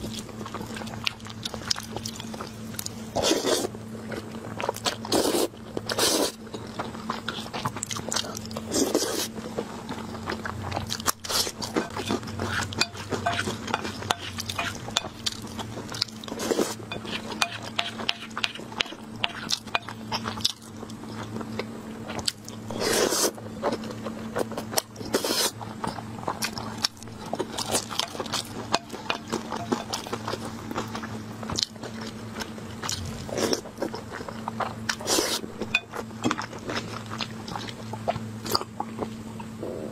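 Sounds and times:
low hum: 25.7s - 39.9s.

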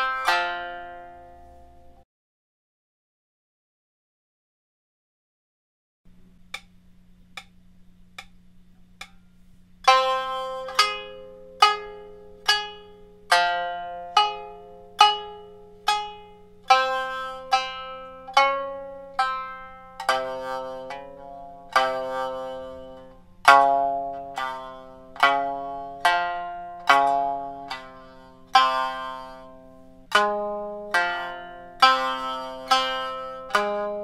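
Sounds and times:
shamisen plucked notes: 0.0s - 2.0s, 9.0s - 34.0s
faint count-in clicks: 6.5s - 7.6s, 8.2s - 8.4s.

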